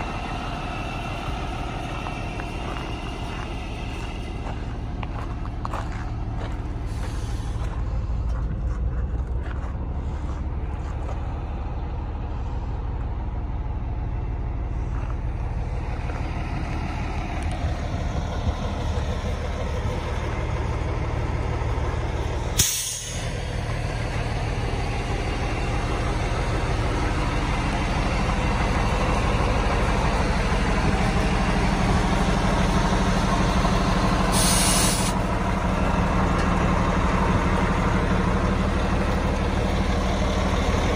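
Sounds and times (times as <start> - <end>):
diesel truck engine running: 0.0 - 40.9
air hiss burst: 22.6 - 23.2, 34.3 - 35.2.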